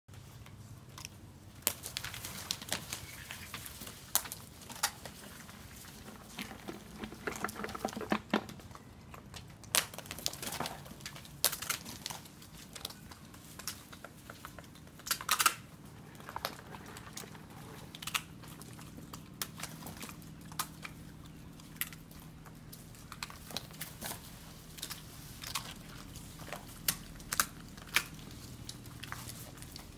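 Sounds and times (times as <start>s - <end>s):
crocodiles crunching shells: 1.0s - 29.9s.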